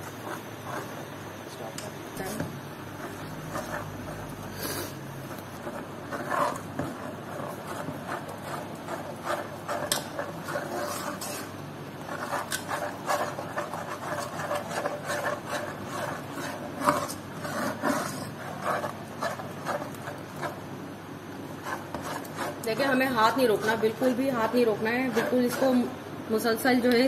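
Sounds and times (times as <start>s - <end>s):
steel ladle scraping pan: 5.6s - 20.6s.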